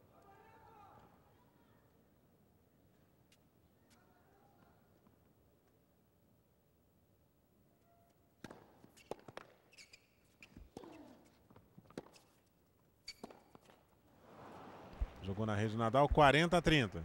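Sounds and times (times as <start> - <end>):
racket hitting tennis ball: 8.4 - 9.6, 10.7 - 12.4, 13.1 - 13.8
shoe squeaks: 8.8 - 13.9.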